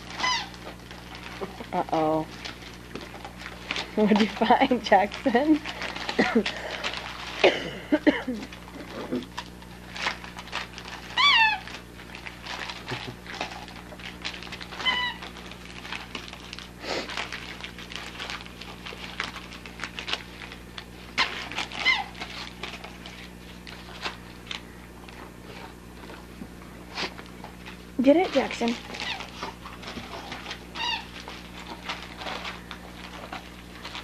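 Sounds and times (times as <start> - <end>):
wrapping paper crinkling and tearing: 0.0 - 34.0
dog's high-pitched cries: 0.1 - 0.7, 11.0 - 11.8, 14.7 - 15.3, 21.6 - 22.3, 30.7 - 31.2.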